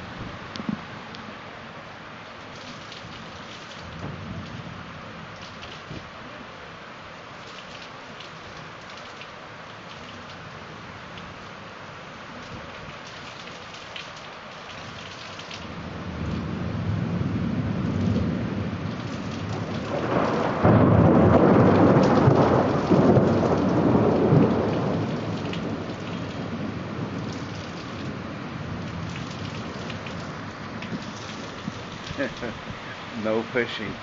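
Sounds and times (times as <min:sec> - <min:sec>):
heavy rain: 0:00.0 - 0:34.0
rolling thunder: 0:03.9 - 0:05.0, 0:15.7 - 0:32.8.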